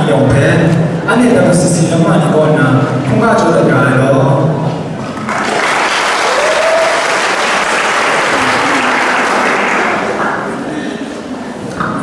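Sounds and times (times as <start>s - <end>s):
audience applauding: 5.1s - 10.8s.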